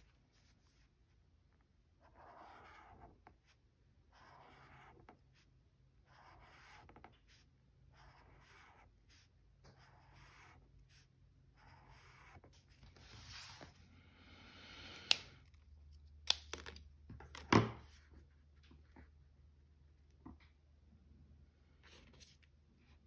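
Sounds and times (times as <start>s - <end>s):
pen scratching on paper: 2.0s - 5.5s, 6.1s - 13.6s.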